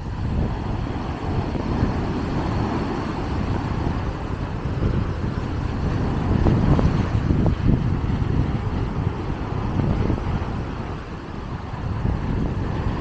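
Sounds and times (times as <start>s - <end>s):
sea surf breaking: 0.0s - 13.0s
wind buffeting microphone: 0.0s - 13.0s.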